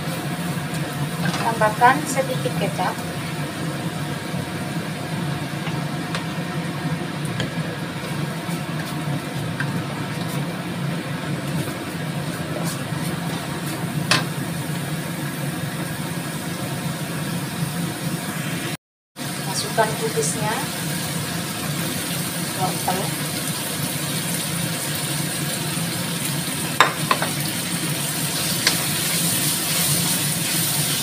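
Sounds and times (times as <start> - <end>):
paste frying in wok: 19.2 - 31.0.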